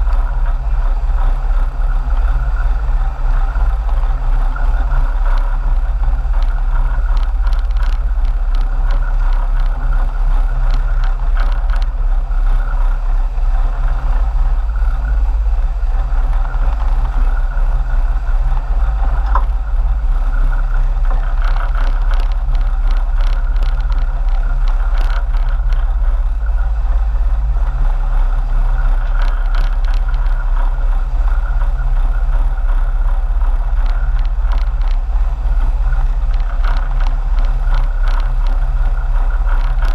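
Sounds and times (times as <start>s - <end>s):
boat engines droning: 0.0s - 39.9s.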